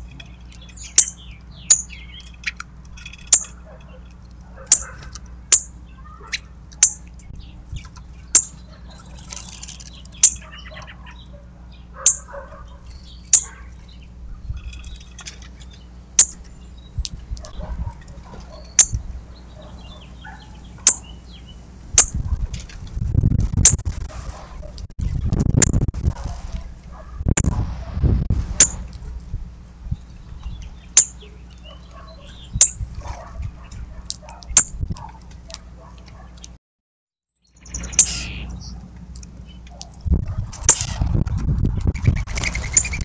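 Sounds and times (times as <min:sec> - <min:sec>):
low rumbling noise: 0:12.6 - 0:34.0
faint bird twittering: 0:18.5 - 0:22.2, 0:37.4 - 0:38.8
songbird chip notes: 0:18.6 - 0:22.2.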